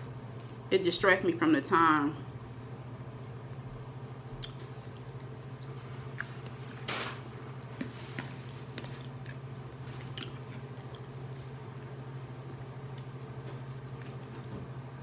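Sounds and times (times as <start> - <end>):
steady low hum: 0.0 - 15.0
person chewing food: 2.3 - 6.9, 7.5 - 14.9.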